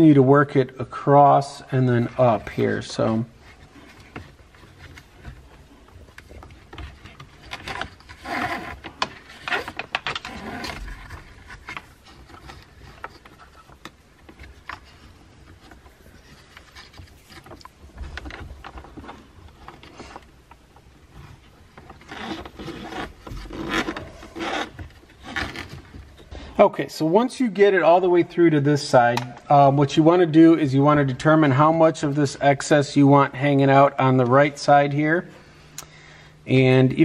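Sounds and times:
cable scraping against plastic: 0.9 - 26.6.

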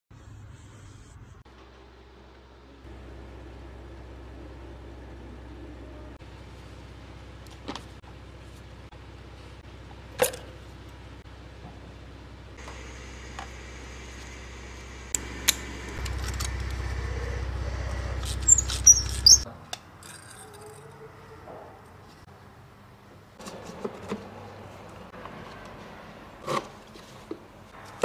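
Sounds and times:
low machine hum: 0.2 - 19.4.

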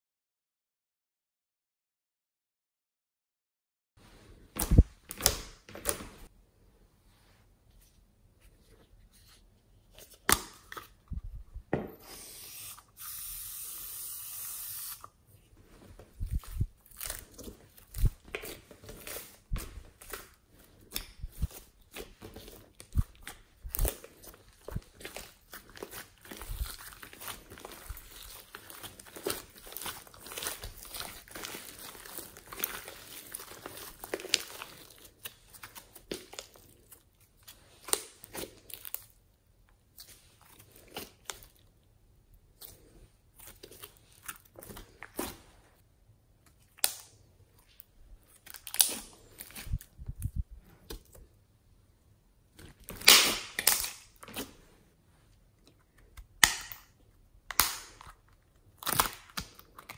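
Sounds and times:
slime crackling and popping: 52.8 - 54.2.

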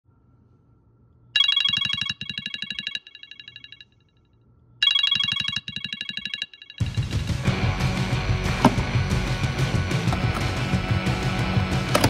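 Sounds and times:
electronic ringtone trill: 1.4 - 3.9, 4.8 - 7.2.

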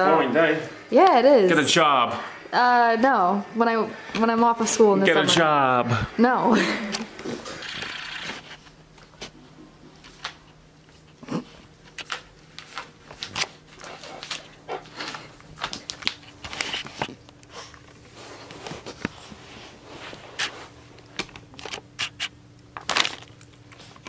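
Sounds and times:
plastic bag crinkling: 22.8 - 24.0.

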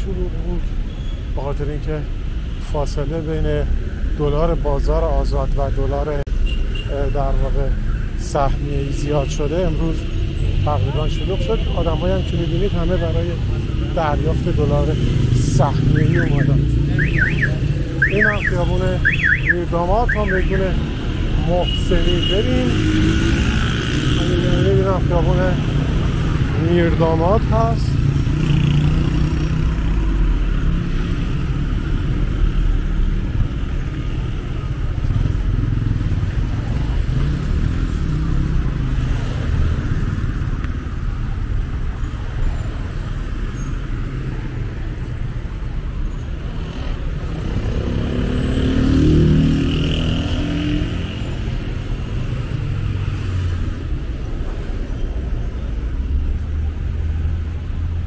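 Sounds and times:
cars and motorcycles passing: 0.0 - 58.0.

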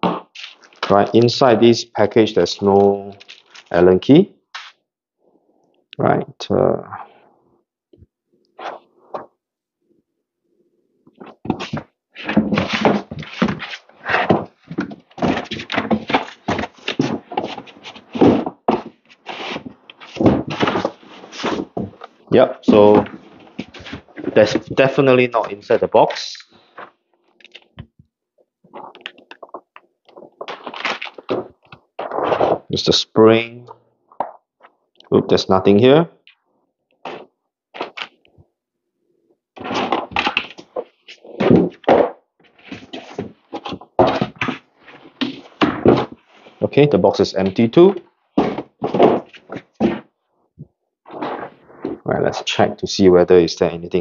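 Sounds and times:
cardboard box scraping and rustling: 11.6 - 21.8.

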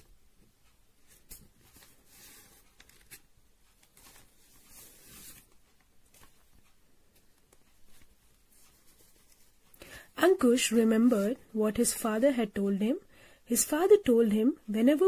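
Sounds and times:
soft rustles: 0.0 - 9.8, 10.7 - 11.6.

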